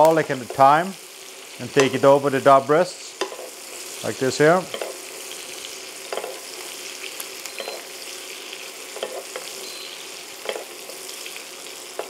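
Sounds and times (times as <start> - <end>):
meat sizzling in frying pan: 0.0 - 12.0
utensils clicking and scraping pan: 1.6 - 2.2, 3.0 - 6.8, 8.8 - 9.7, 10.4 - 11.0.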